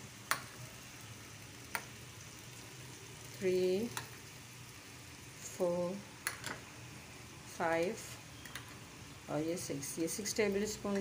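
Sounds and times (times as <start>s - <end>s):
masala sizzling in hot oil: 0.0s - 11.0s
woman's voice: 3.4s - 4.0s, 5.4s - 6.1s, 7.5s - 8.2s, 9.3s - 11.0s.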